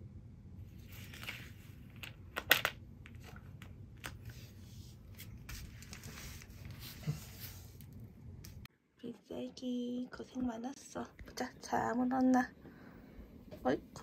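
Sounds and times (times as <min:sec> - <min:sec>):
low steady hum: 0:00.0 - 0:14.0
soft rustling and crinkling: 0:00.6 - 0:02.3, 0:03.0 - 0:08.7.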